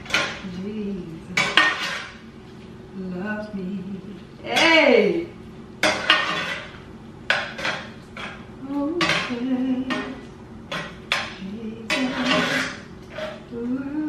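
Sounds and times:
spoon scraping metal skillet: 0:01.4 - 0:02.2, 0:05.8 - 0:08.4, 0:11.9 - 0:13.5.

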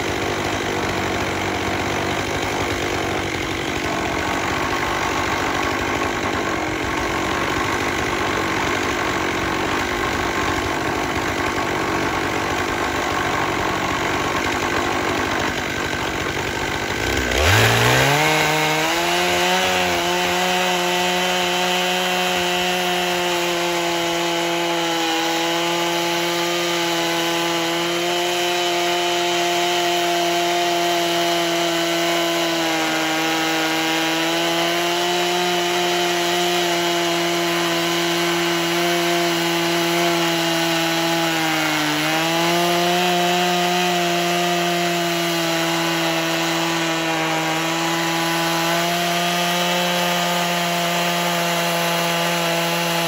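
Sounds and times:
chainsaw idling and revving: 0:00.0 - 0:53.0.

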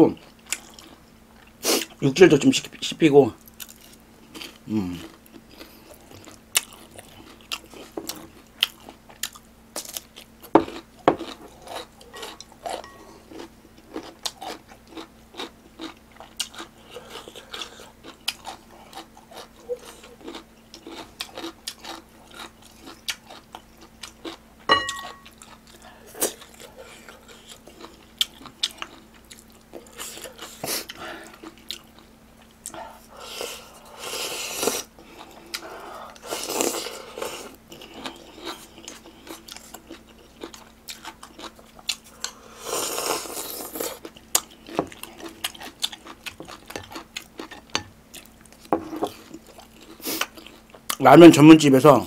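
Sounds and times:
faint steady hum: 0:00.0 - 0:52.0
person chewing crunchy food: 0:00.1 - 0:02.0, 0:03.4 - 0:51.0
ringing clink against a bowl: 0:12.1 - 0:13.1, 0:24.7 - 0:25.3.

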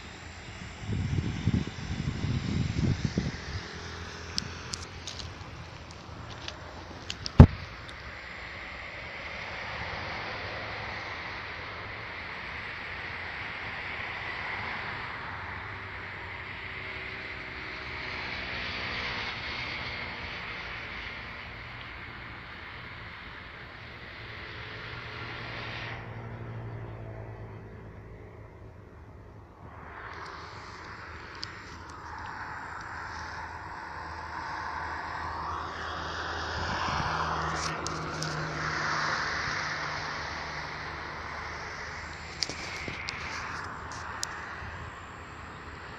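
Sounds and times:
road vehicle passing: 0:00.0 - 0:45.9
faint hum: 0:21.7 - 0:45.9.

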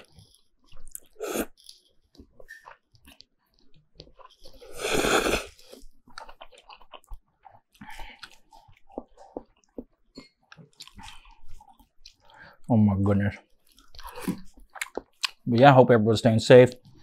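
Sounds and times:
person slurping noodles: 0:00.9 - 0:01.6, 0:04.4 - 0:05.9
wet chewing smacks: 0:05.5 - 0:12.7, 0:13.4 - 0:15.4.

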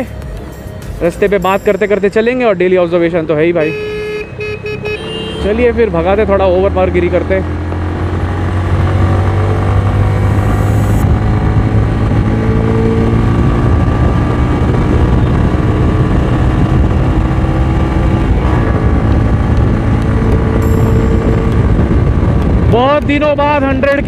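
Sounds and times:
road and wind rush: 0:00.0 - 0:24.0
motorcycle engine drone: 0:01.0 - 0:24.0.

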